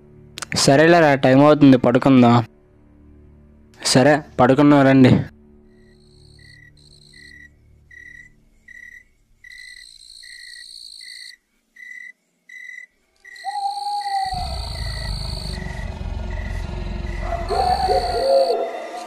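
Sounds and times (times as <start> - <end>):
crickets chirping: 5.7 - 19.0.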